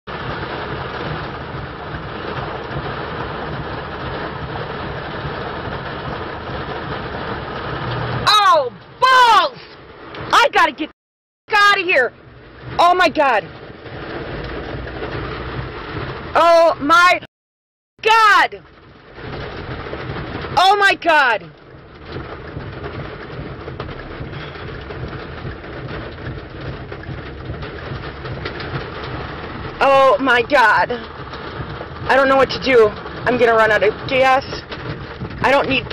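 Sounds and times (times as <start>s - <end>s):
heavy rain on a car: 0.1s - 17.3s, 18.0s - 35.9s
low rumble: 13.4s - 16.8s, 21.4s - 35.9s.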